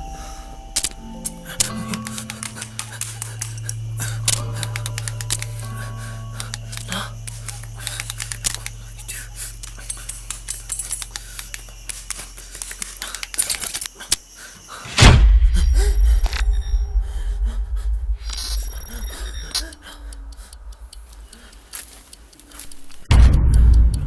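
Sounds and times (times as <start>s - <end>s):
deep rumble: 0.0s - 10.4s, 14.9s - 21.2s, 23.1s - 24.0s
low drone: 0.0s - 13.1s, 14.9s - 21.4s
scattered clicks: 0.0s - 24.0s
sudden loud hit: 14.9s - 18.2s, 23.1s - 23.6s.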